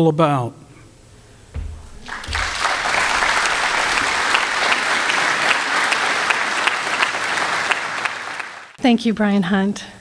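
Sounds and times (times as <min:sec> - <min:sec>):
audience applauding: 0:01.6 - 0:08.8.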